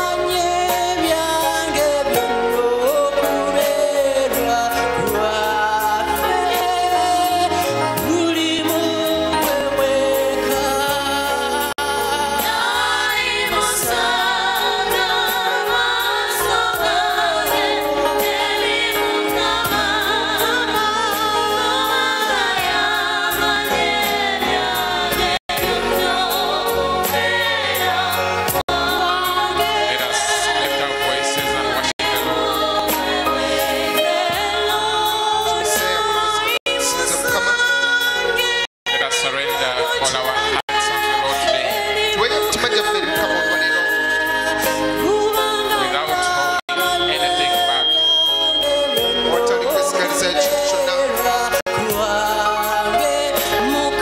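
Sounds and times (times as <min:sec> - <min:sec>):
women's choir singing gospel: 0:00.0 - 0:39.0
instrumental accompaniment with beat: 0:00.0 - 0:54.0.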